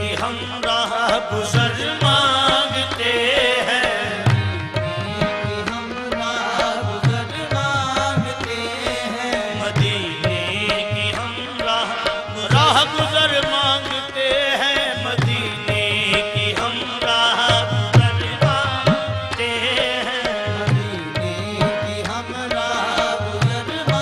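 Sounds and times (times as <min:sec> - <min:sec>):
harmonium chords: 0:00.0 - 0:24.0
men singing: 0:00.0 - 0:24.0
tabla playing rhythm: 0:00.0 - 0:24.0.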